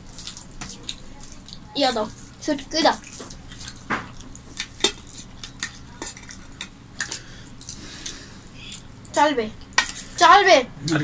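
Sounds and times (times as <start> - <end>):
fingers and spoon clinking on metal plates: 4.6 - 7.7.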